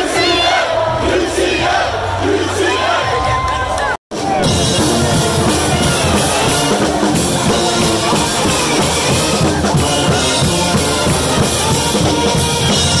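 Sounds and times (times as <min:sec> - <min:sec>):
drum kit with cymbals: 0:04.1 - 0:13.0
trumpets: 0:04.2 - 0:13.0
saxophones: 0:04.3 - 0:13.0.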